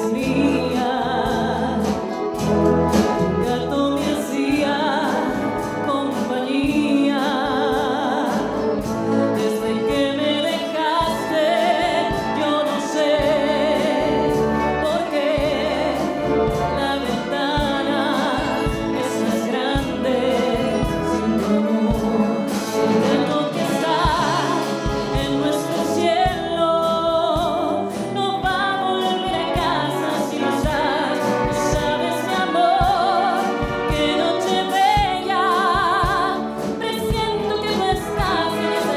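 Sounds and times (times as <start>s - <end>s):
woman singing a slow ballad: 0.0s - 2.2s, 3.4s - 38.9s
concert wind band playing: 0.0s - 38.9s.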